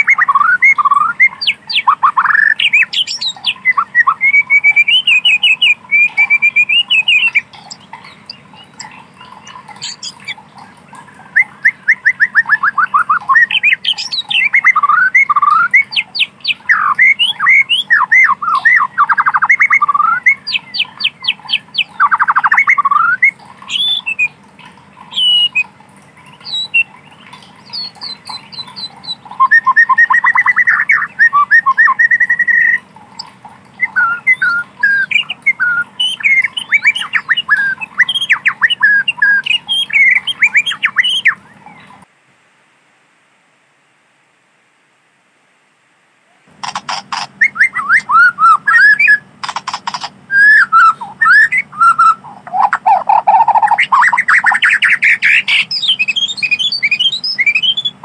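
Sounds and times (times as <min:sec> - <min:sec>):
bird singing whistled phrases: 0:00.0 - 0:10.4, 0:11.2 - 0:24.4, 0:25.1 - 0:25.7, 0:26.3 - 0:42.0, 0:46.7 - 0:58.0.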